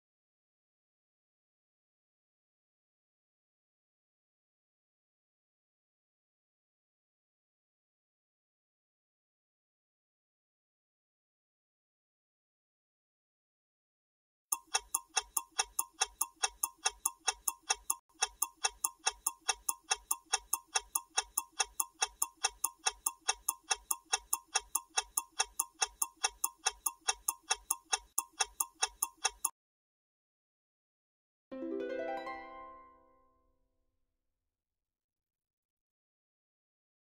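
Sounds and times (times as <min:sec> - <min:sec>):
countdown timer ticking: 0:14.5 - 0:29.5.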